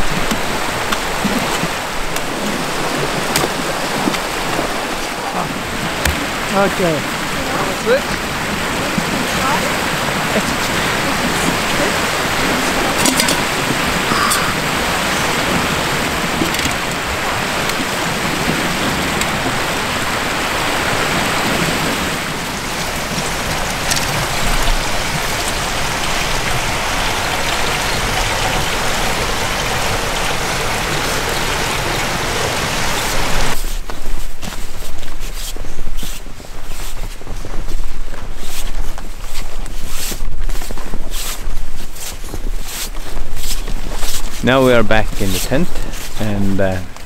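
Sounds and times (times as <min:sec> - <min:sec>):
river water rushing: 0:00.0 - 0:47.0
footsteps in snow: 0:33.0 - 0:47.0.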